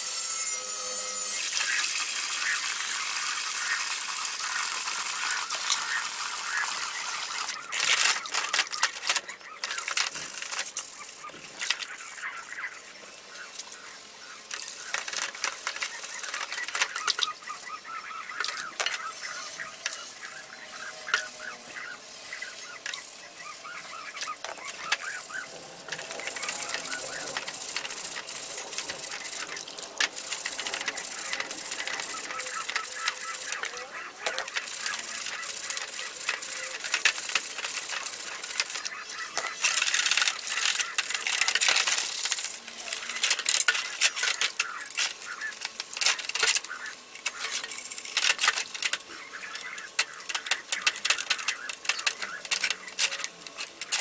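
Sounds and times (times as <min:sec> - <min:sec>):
bristle brush scrubbing metal: 0:00.0 - 0:54.0
metal parts clinking against basin: 0:05.0 - 0:12.6, 0:22.4 - 0:54.0.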